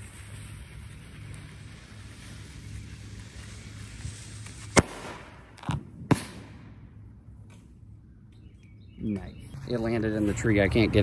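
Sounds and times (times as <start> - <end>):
firework hiss: 0.0 - 6.5
firework sharp pops: 1.2 - 6.8.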